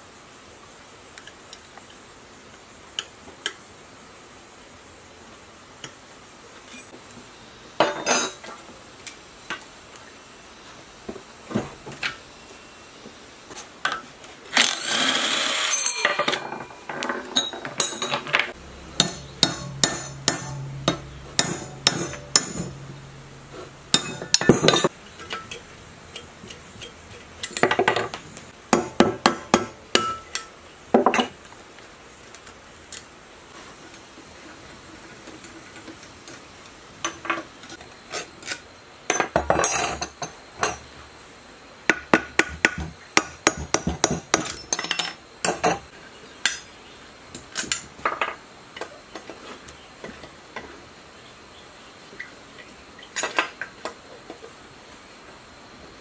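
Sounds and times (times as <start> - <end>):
metal tools clinking and knocking: 7.8 - 8.5, 15.6 - 22.9, 23.9 - 28.1, 39.1 - 40.8, 44.4 - 45.8
low steady hum: 15.8 - 30.9.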